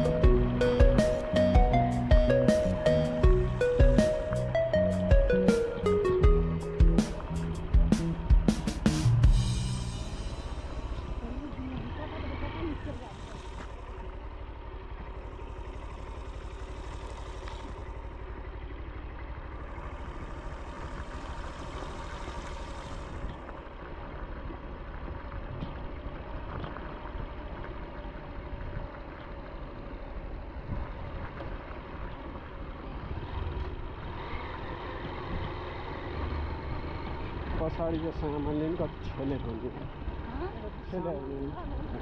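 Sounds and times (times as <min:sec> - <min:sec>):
motorcycle engine running: 0:00.0 - 0:42.0
faint clicks: 0:17.3 - 0:17.9.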